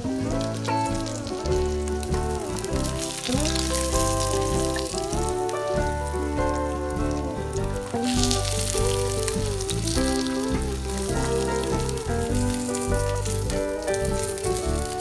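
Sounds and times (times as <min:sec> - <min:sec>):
background music: 0:00.0 - 0:15.0
fish sizzling in frying pan: 0:00.0 - 0:15.0.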